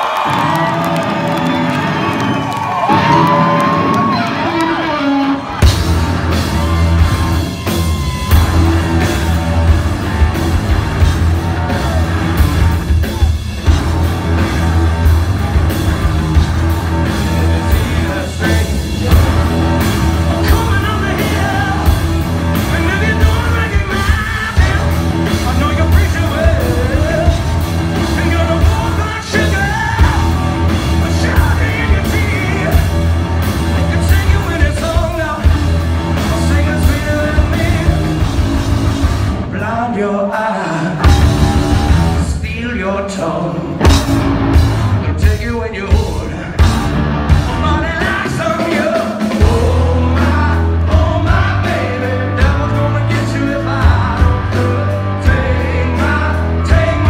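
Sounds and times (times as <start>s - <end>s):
bass guitar: 0.0s - 57.0s
distorted electric guitar: 2.9s - 39.5s, 43.5s - 45.4s, 46.0s - 57.0s
drum kit: 5.4s - 39.8s, 40.9s - 42.8s, 43.7s - 57.0s
man singing: 17.2s - 33.0s, 33.7s - 38.3s, 39.4s - 44.0s, 45.0s - 57.0s.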